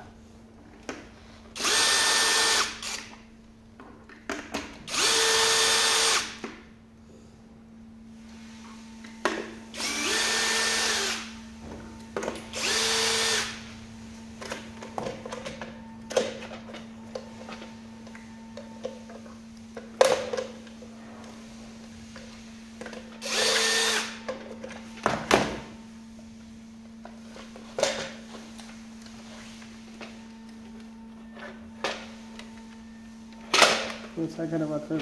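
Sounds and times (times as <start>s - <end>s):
cordless drill motor: 1.6s - 3.2s, 4.9s - 6.4s, 9.7s - 11.4s, 12.5s - 13.6s, 23.2s - 24.2s.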